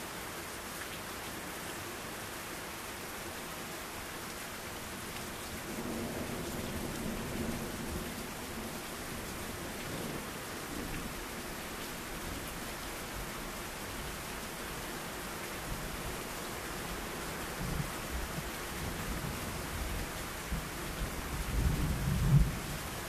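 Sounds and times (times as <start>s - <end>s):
steady rain falling: 0.0s - 23.0s
low rumble of thunder: 5.6s - 12.6s, 17.6s - 23.0s.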